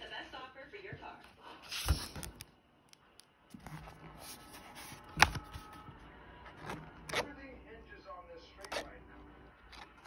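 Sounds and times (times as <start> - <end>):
pages rustling and turning: 3.5 - 5.9.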